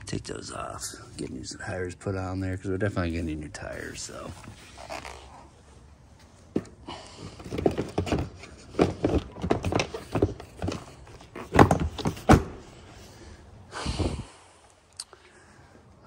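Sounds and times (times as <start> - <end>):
sharp knocks and clunks: 7.3 - 12.6.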